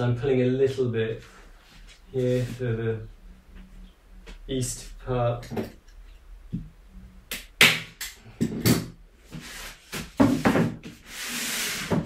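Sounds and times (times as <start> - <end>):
frame scraping on floorboards: 9.3 - 12.0.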